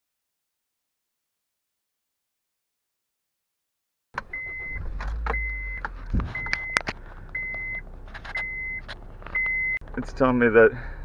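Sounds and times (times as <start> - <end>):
seatbelt reminder beeps: 4.2 - 9.8
clicks: 4.2 - 10.0.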